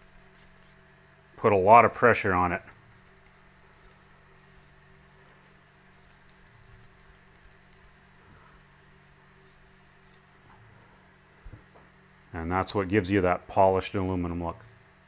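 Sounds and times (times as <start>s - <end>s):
leather rubbing on metal rim: 0.0s - 0.8s, 2.0s - 10.4s
low steady hum: 0.0s - 15.0s.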